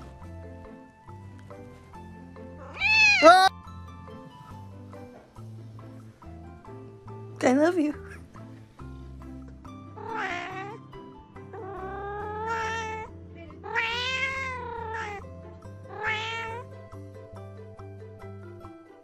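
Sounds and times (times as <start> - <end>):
background music: 0.0 - 19.0
cat meowing: 2.6 - 3.5, 10.0 - 10.9, 11.5 - 16.6.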